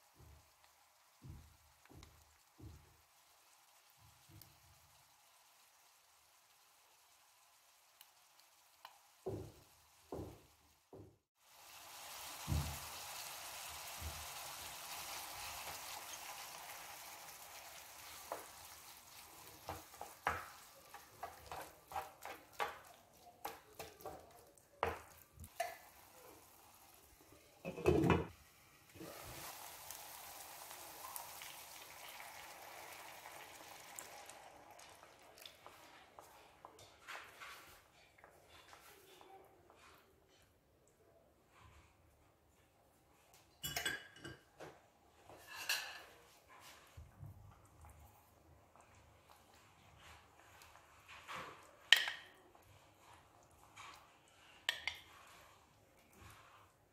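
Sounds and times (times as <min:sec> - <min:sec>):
food sizzling in a frying pan: 0:00.0 - 0:39.0, 0:43.6 - 0:56.9
wooden spoon scraping a pan: 0:14.0 - 0:28.4, 0:34.9 - 0:40.6, 0:45.2 - 0:47.1, 0:48.7 - 0:56.9.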